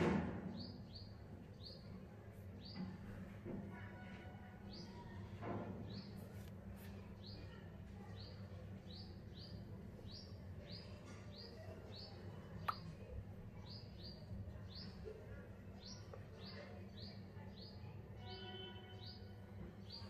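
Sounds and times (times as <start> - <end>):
faint bird chirping: 0.5 - 20.0.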